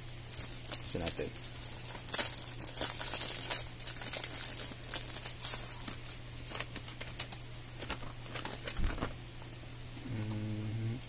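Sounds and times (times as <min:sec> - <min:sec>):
paper rustling and crinkling: 0:00.3 - 0:09.2.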